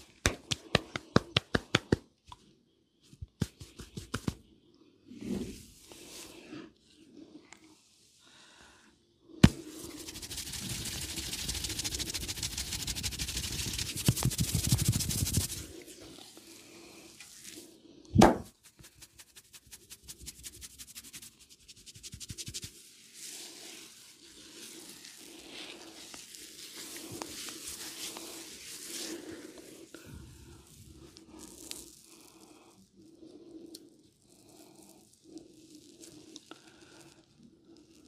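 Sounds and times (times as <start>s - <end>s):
hands rubbing oiled hair: 0.0s - 2.0s, 3.2s - 4.4s, 9.4s - 17.7s, 18.4s - 32.5s, 34.2s - 37.2s
hand smack: 0.2s - 2.0s, 18.2s - 18.5s.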